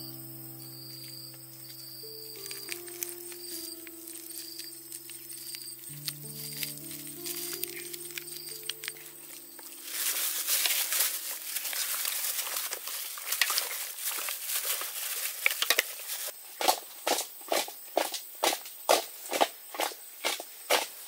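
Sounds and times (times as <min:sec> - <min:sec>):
plastic bag crinkling: 0:01.7 - 0:16.3.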